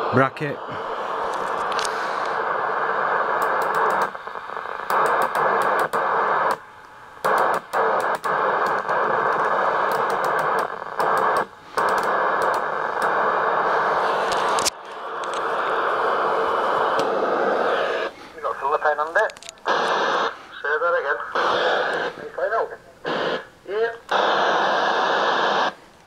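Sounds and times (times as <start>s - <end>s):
radio static hiss: 0.0s - 26.0s.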